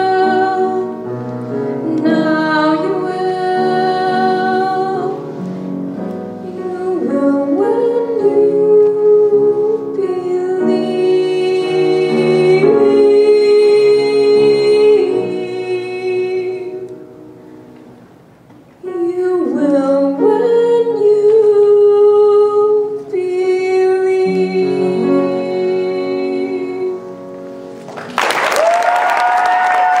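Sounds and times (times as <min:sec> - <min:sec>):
woman singing a ballad: 0:00.0 - 0:01.1, 0:01.7 - 0:05.4, 0:06.4 - 0:17.0, 0:18.8 - 0:27.1
audience applause: 0:27.9 - 0:30.0.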